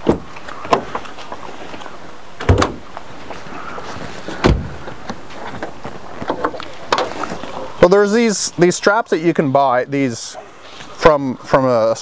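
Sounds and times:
car hood latch clunks: 2.4 - 2.8, 4.4 - 4.8.

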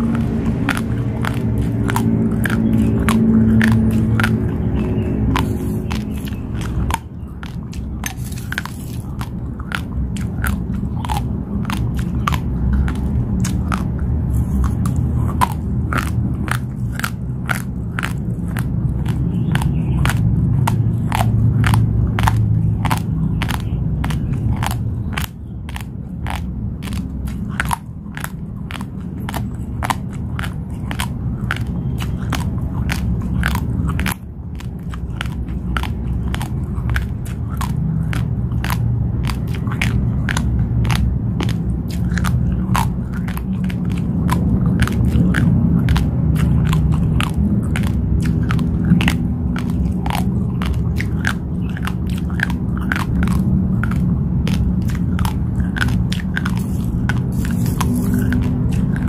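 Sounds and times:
person chewing raw rice: 0.0 - 59.0.

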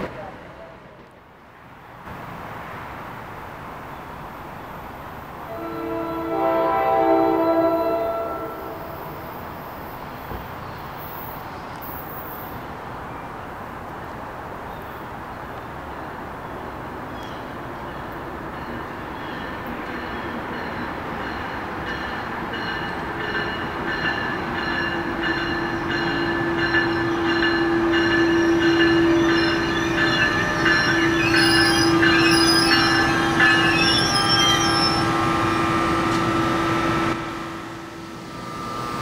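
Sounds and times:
electric train passing with hum: 2.3 - 39.0
high wheel squeals: 28.3 - 36.1.

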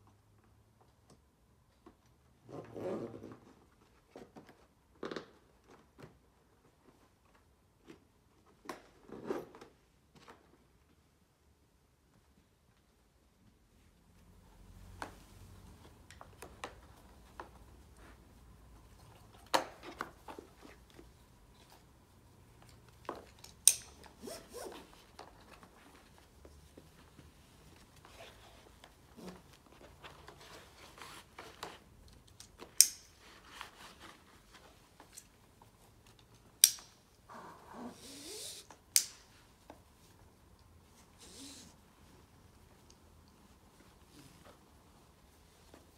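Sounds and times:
webbing straps rustling and scraping: 16.7 - 36.5.

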